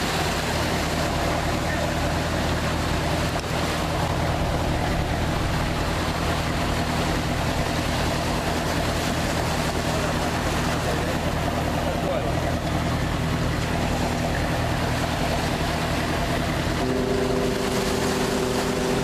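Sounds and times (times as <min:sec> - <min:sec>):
ship diesel engines humming: 0:00.0 - 0:19.0
water washing: 0:00.0 - 0:19.0.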